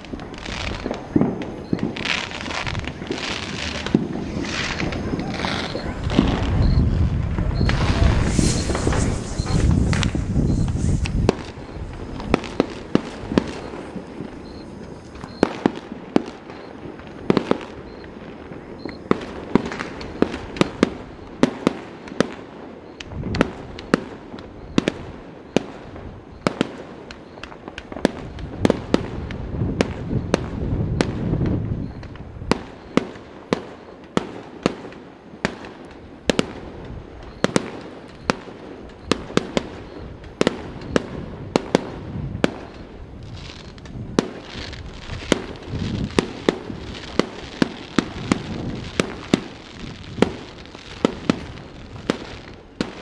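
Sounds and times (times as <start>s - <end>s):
continuous crackling: 0.0s - 53.0s
fireworks bangs: 0.0s - 53.0s
low rumbling: 0.1s - 12.6s.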